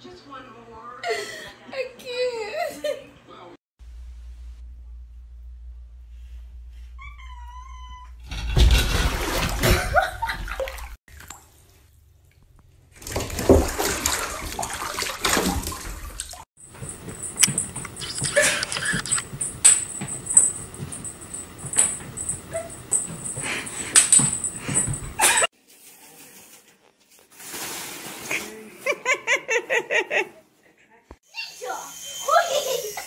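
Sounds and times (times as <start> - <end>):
cat meowing: 7.0 - 8.2
water splashing in a bathtub: 8.3 - 19.3
scattered clicks: 17.4 - 19.9
steady high ringing: 19.0 - 25.5.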